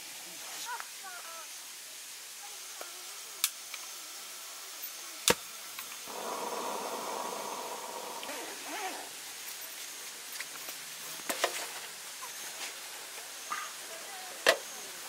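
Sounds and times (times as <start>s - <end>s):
gas lantern hissing: 3.3s - 15.0s.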